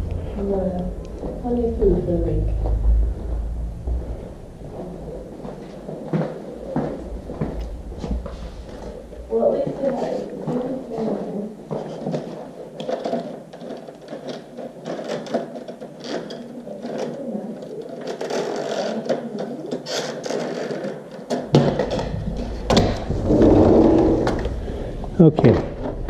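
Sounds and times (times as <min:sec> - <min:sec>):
low rumble: 0:00.0 - 0:11.0, 0:21.8 - 0:26.0
window blinds clicking and rattling: 0:11.9 - 0:23.8.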